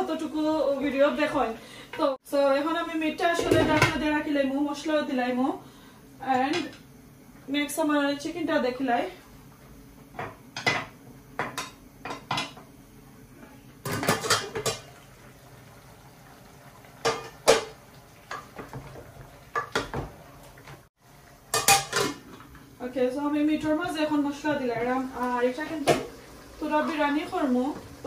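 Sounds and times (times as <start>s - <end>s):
utensils knocking against pots: 10.2s - 12.7s, 13.8s - 14.9s, 17.0s - 20.1s, 21.5s - 22.4s
pot lids clattering: 13.8s - 15.0s, 17.0s - 20.1s, 21.5s - 22.4s.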